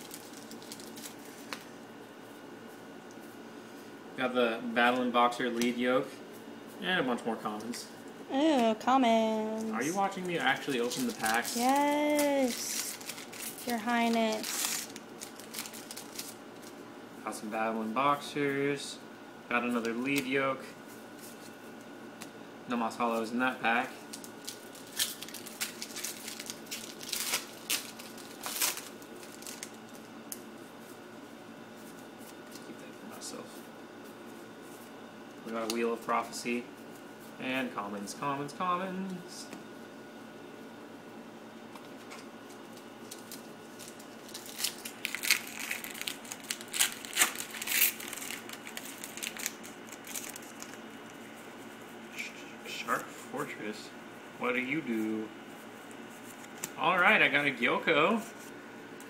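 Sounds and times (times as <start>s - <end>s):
foil wrapper crinkling and tearing: 0.0s - 1.7s, 9.9s - 16.8s, 24.1s - 30.0s, 42.5s - 51.2s
cards rustling: 9.6s - 16.8s, 24.1s - 29.8s, 42.1s - 50.8s.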